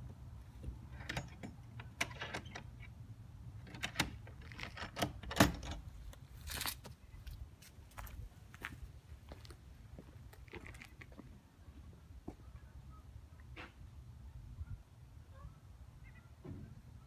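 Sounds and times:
footsteps crunching on dry leaves: 6.3 - 7.0.

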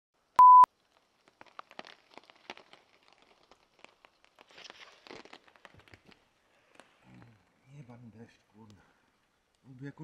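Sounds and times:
raindrops tapping on a tarp: 0.7 - 7.3
soft rustles: 0.7 - 7.9.

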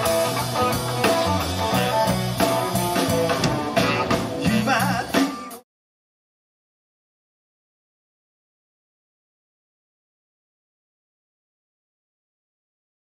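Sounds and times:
live band with electric guitar: 0.0 - 5.6.

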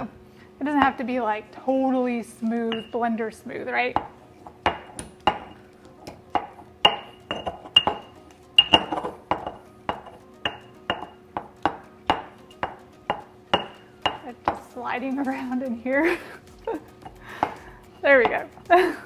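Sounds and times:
pestle clinking in a mortar: 2.6 - 3.2, 3.9 - 14.7, 17.0 - 18.6.

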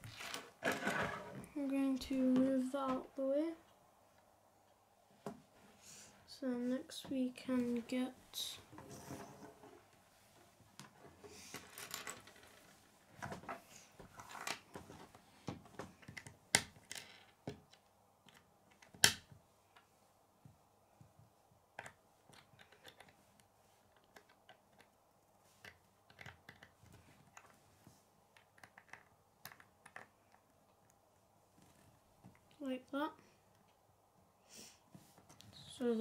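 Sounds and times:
plastic pieces clicking and rattling: 21.8 - 23.2, 23.9 - 24.9, 25.6 - 27.6, 28.4 - 30.4.

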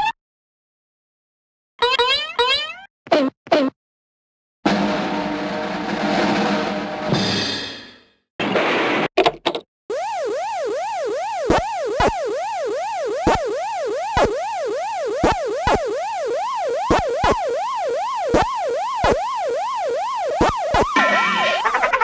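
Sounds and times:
fast yelping siren: 9.9 - 22.0.

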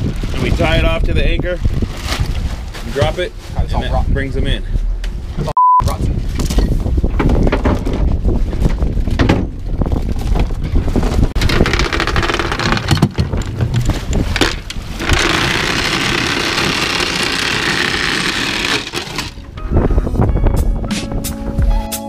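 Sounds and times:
wind rumbling on microphone: 0.0 - 21.8
anchor chain rattling: 11.4 - 19.4.

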